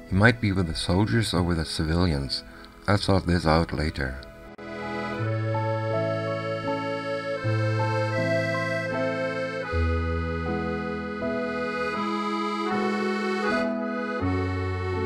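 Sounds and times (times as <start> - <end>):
background music with bass line: 4.2 - 15.0.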